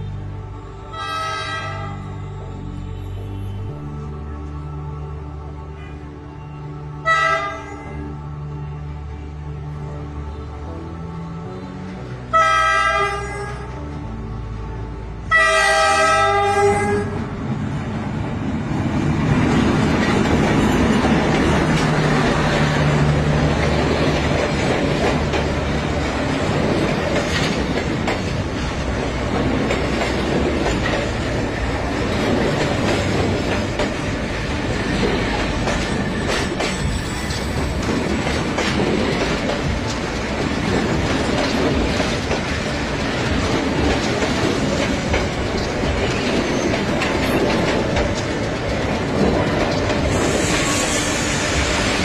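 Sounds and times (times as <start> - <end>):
train rumbling past: 0.0 - 52.0
train horn blasts: 0.1 - 3.8, 5.7 - 8.2, 11.5 - 13.9, 15.2 - 17.3.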